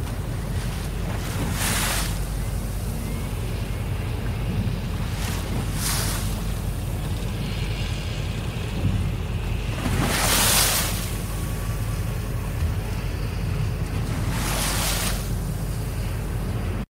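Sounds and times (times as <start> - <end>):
water slapping against boat hull: 0.0 - 3.0, 4.2 - 13.0
steady low rumble: 0.0 - 16.9.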